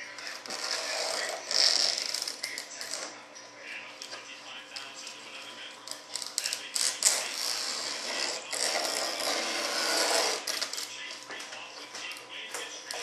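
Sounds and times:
plastic film peeling and crinkling: 5.8s - 7.5s.

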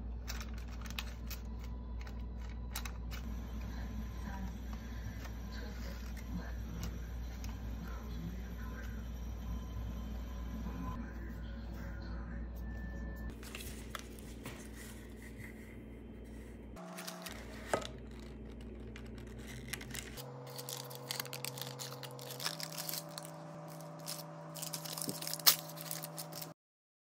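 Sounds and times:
parchment paper crinkling: 13.3s - 26.6s.

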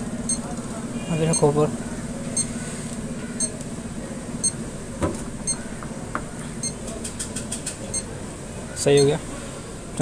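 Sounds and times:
scale beeping: 0.2s - 0.5s, 4.4s - 4.6s.

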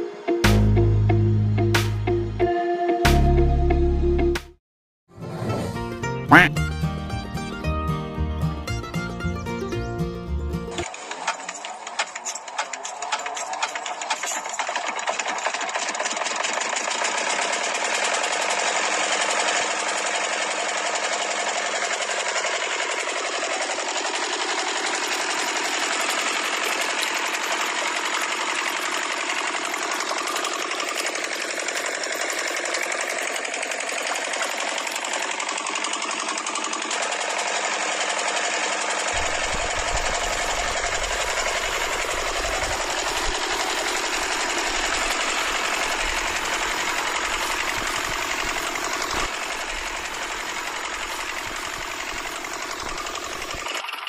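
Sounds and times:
toy diesel engine rattling: 10.8s - 54.0s.

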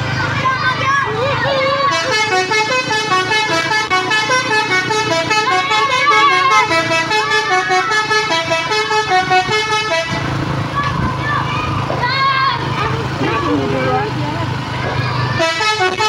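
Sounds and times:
bus musical horn tune: 1.7s - 10.4s, 15.4s - 16.0s.

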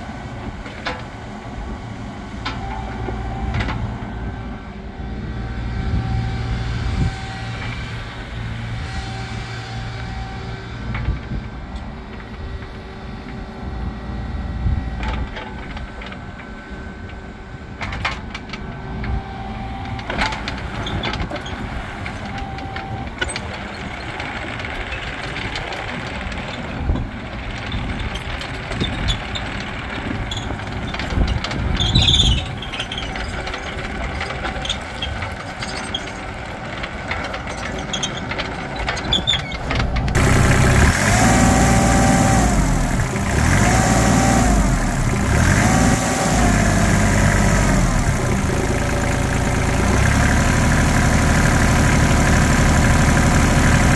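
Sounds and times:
diesel engine running: 0.0s - 53.9s
hydraulics working: 14.4s - 53.9s.

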